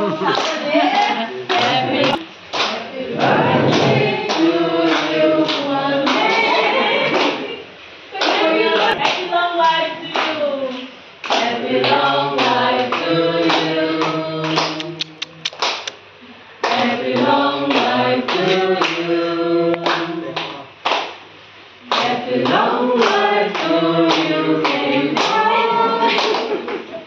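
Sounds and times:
group singing: 0.0s - 10.6s, 11.2s - 15.2s, 16.6s - 20.4s, 21.8s - 26.8s
hand claps: 10.1s - 16.0s, 19.7s - 21.2s, 21.9s - 25.4s, 26.1s - 26.9s.

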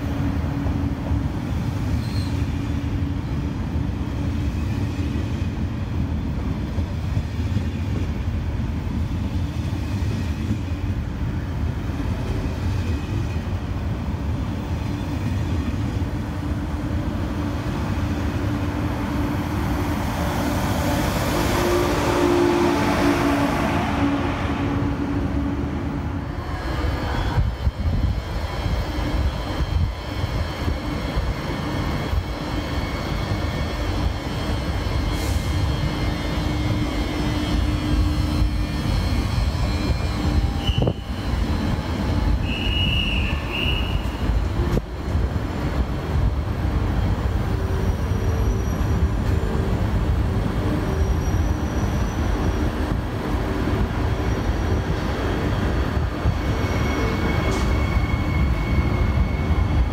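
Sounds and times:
train rumbling: 0.0s - 59.9s
high squeals: 56.2s - 59.9s.

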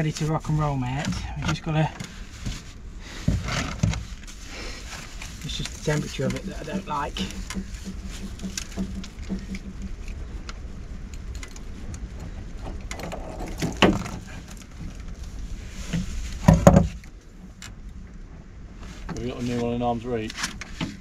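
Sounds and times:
heavy knocks: 5.8s - 10.2s, 16.4s - 17.0s.

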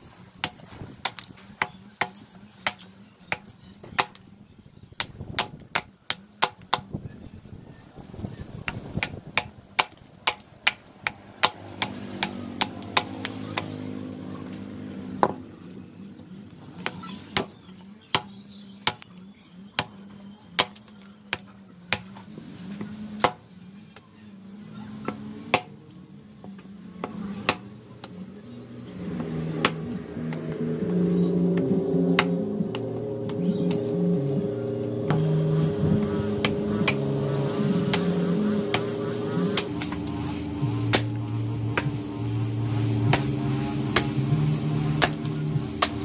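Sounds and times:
hatchet chopping into wood: 0.4s - 4.2s, 5.0s - 6.9s, 8.7s - 13.8s, 16.8s - 17.5s, 18.1s - 19.2s, 19.8s - 20.0s, 20.6s - 22.2s, 22.8s - 23.4s, 25.1s - 25.8s, 27.0s - 28.2s, 29.2s - 29.8s, 40.9s - 41.2s, 45.0s - 46.0s.

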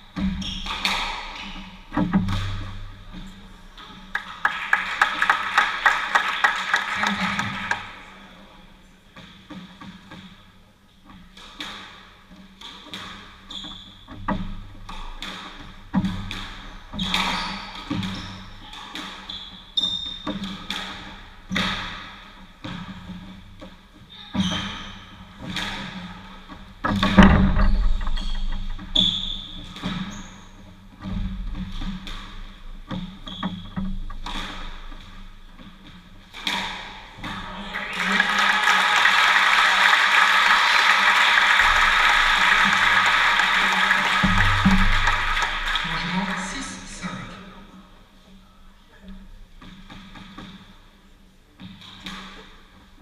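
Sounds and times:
shoe squeaks: 0.2s - 1.8s, 12.6s - 14.3s, 16.9s - 20.5s, 24.1s - 25.2s, 27.7s - 30.7s, 33.2s - 33.8s
squash ball cracking off rackets: 0.2s - 3.2s, 14.2s - 23.0s, 25.4s - 30.1s, 31.3s - 37.4s.

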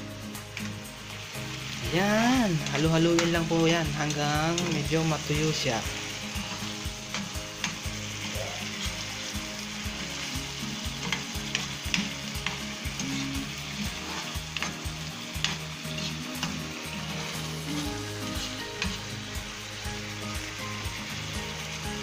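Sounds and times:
chicken sizzling in hot oil: 0.0s - 22.0s
metal spatula scraping pan: 4.1s - 5.0s, 10.9s - 14.8s, 15.4s - 19.0s.

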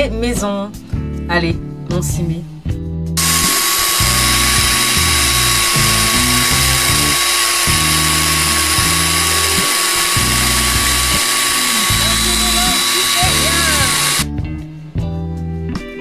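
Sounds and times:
electric chopper whining: 3.2s - 14.3s.

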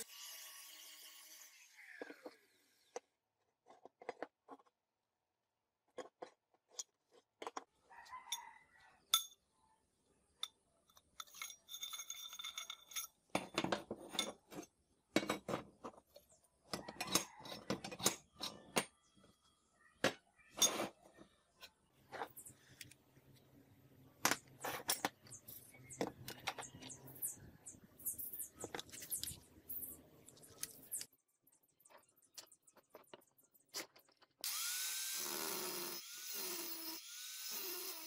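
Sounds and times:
steel clinking and knocking: 10.4s - 15.6s.

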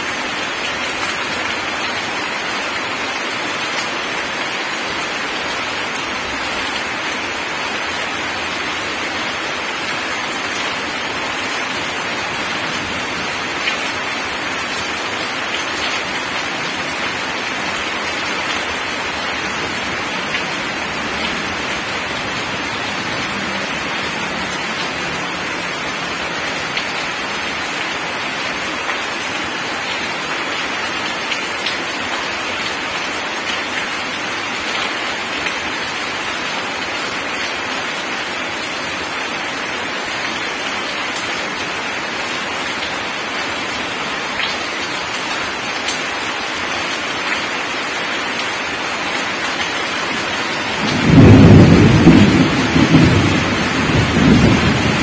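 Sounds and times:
heavy rain on gravel and puddles: 0.0s - 55.0s
thunder rumble: 50.8s - 55.0s.

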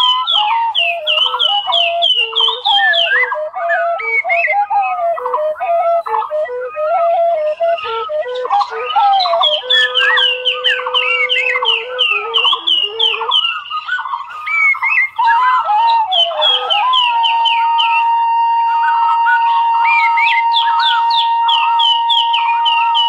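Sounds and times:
bird-like chirps: 0.0s - 6.8s, 7.4s - 18.2s
music with long held notes: 0.0s - 23.0s.

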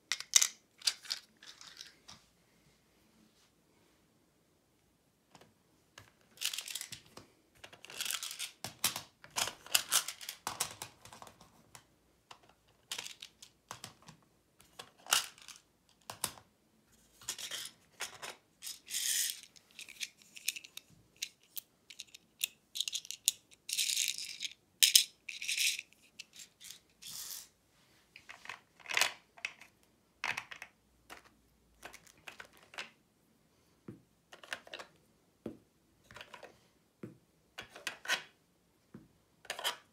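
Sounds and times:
plastic pieces clicking and rattling: 0.1s - 2.0s, 6.0s - 11.4s, 12.3s - 16.4s, 17.3s - 27.5s, 28.3s - 33.0s, 34.3s - 34.9s.

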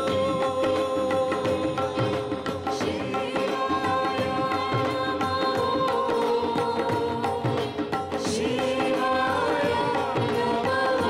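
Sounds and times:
tabla beating: 0.0s - 11.0s.

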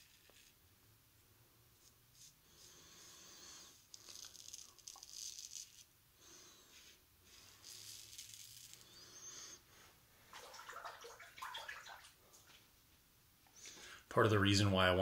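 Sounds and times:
water splashing: 10.3s - 12.6s.

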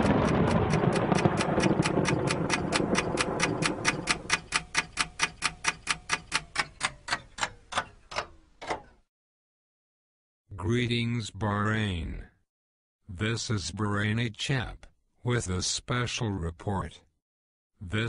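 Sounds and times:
rumbling noise: 0.0s - 4.3s
clock-like ticking: 0.0s - 8.4s.

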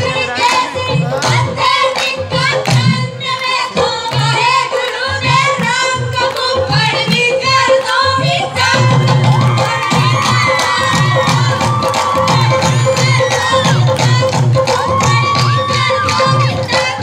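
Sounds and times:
women singing through loudspeakers: 0.0s - 17.0s
low drum beat: 5.2s - 17.0s.

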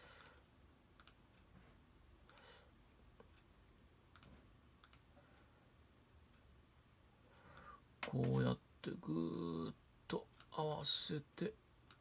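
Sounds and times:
faint mouse clicks: 1.0s - 1.2s, 4.1s - 5.0s.

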